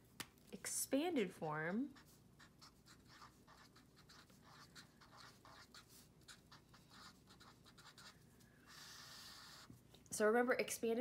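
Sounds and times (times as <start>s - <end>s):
marker writing on paper: 1.8s - 9.8s.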